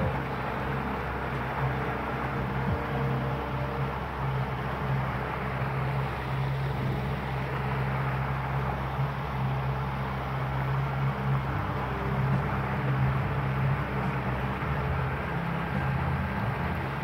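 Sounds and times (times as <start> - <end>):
outboard motor humming: 0.0 - 17.0
wind and water hiss: 0.0 - 17.0.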